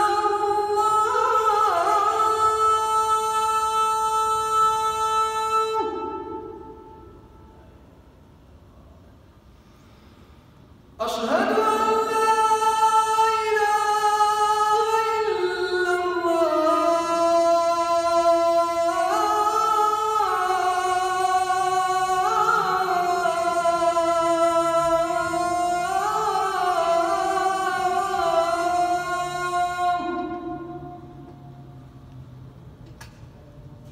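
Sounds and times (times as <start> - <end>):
man chanting call to prayer: 0.0 - 7.0, 11.0 - 31.8.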